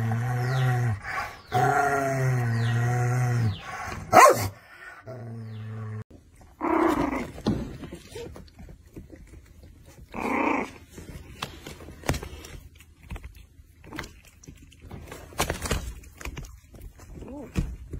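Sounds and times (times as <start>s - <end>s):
dog growling: 0.0s - 7.5s, 9.9s - 11.0s
dog barking: 4.1s - 4.6s.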